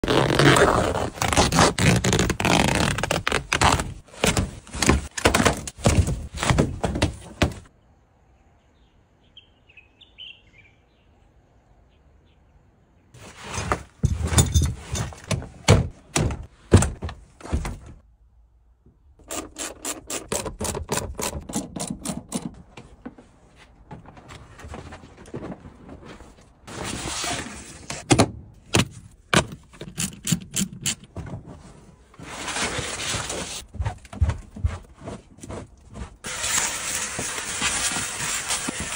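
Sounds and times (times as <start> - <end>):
car seat parts knocking and scraping: 3.6 - 7.7.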